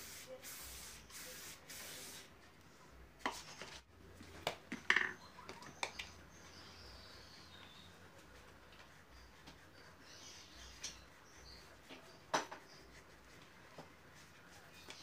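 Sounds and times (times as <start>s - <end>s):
paintbrush swishing: 7.5s - 15.0s.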